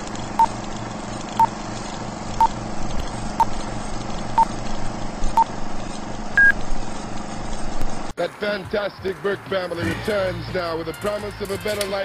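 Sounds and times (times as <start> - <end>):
film projector whirring: 0.0 - 8.1
short beeps: 6.4 - 6.6.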